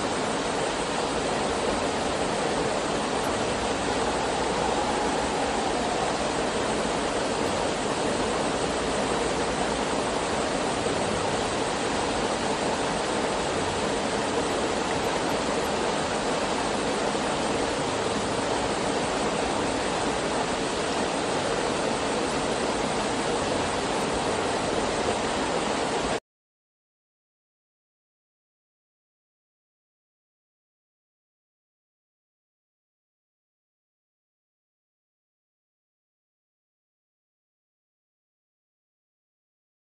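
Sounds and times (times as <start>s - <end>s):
waterfall splashing into pool: 0.8s - 26.2s.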